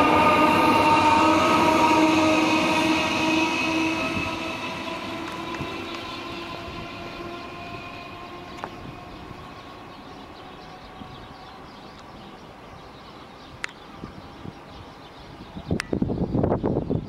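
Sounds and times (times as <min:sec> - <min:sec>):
electric train motors whining: 0:00.0 - 0:13.2.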